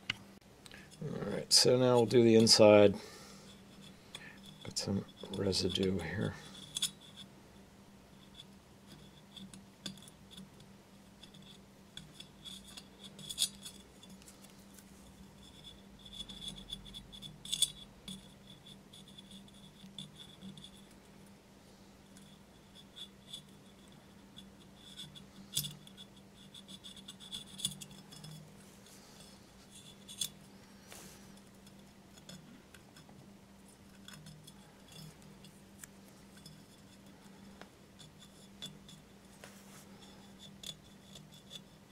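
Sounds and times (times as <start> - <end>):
metal scraper scratching porcelain: 11.2 - 14.1, 15.4 - 20.9, 22.2 - 28.6.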